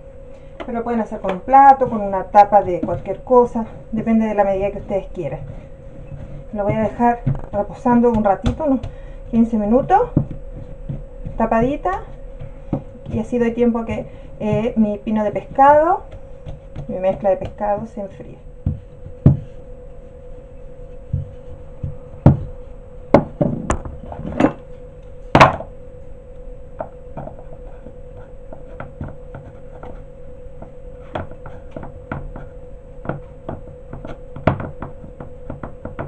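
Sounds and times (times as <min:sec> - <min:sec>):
faint steady hum: 0:00.0 - 0:36.0
rolling pin thudding on stone: 0:06.6 - 0:13.4, 0:31.1 - 0:36.0.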